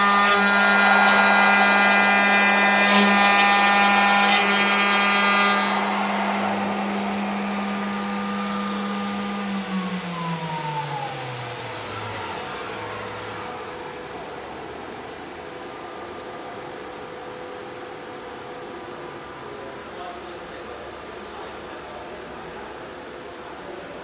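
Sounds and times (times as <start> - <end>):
machine spindle whine: 0.0 - 20.0
faint machine hum: 0.0 - 24.0.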